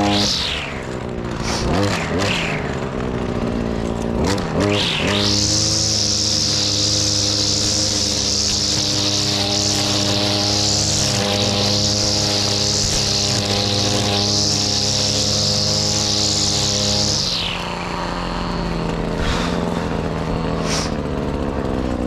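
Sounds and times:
line head whizzing through grass: 0:00.0 - 0:02.8, 0:20.6 - 0:21.0
brushcutter engine: 0:00.0 - 0:22.0.

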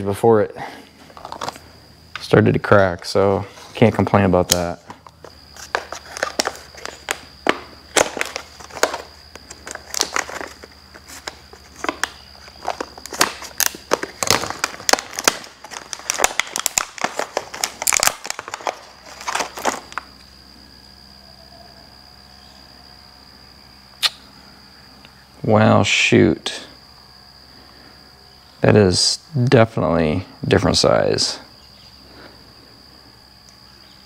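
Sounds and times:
plastic packaging crinkling and tearing: 0:04.5 - 0:20.1.

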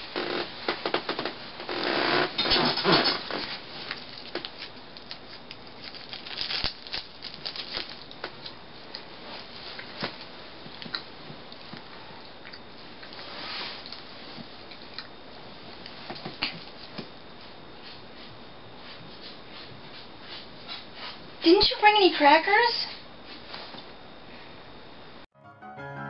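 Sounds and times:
snack packet crinkling: 0:03.9 - 0:08.5
rustling and shuffling on bed: 0:13.2 - 0:14.6.

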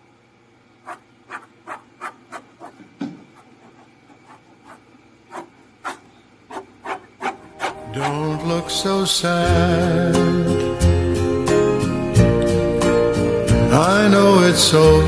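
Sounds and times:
pencil scratching on paper: 0:00.9 - 0:08.2.

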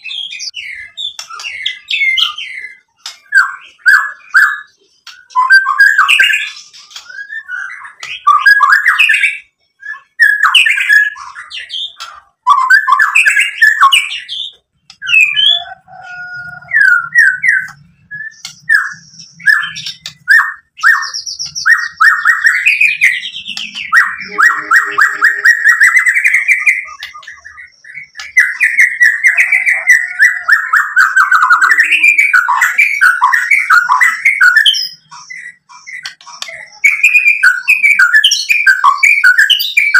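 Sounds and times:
bird singing whistled phrases: 0:00.0 - 0:39.9.

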